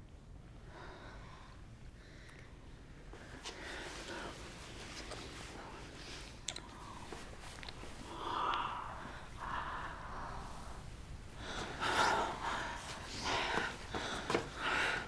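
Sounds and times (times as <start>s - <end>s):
women heavy breathing and gasping: 8.0s - 15.0s.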